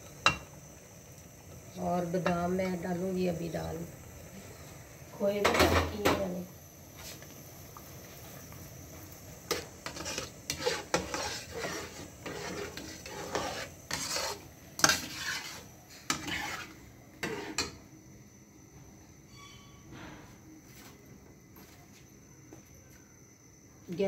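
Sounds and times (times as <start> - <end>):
metal spoon clinking and scraping pan: 9.5 - 17.8.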